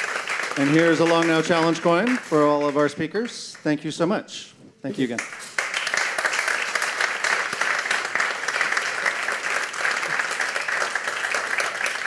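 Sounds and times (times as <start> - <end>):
audience applauding: 0.0 - 3.8, 5.2 - 12.0.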